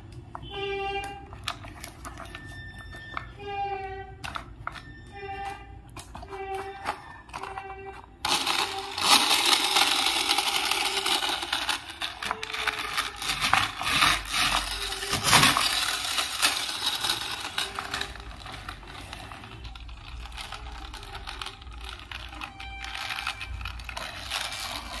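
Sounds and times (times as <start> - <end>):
plastic toy truck rustling and clicking: 0.0 - 25.0.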